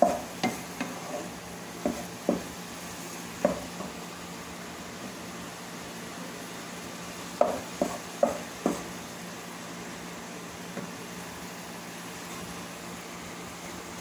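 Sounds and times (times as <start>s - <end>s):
spatula stirring meat in saucepan: 0.0s - 4.1s, 6.9s - 9.0s
spatula knocking against pan: 1.8s - 2.5s, 3.4s - 4.0s, 7.4s - 8.9s.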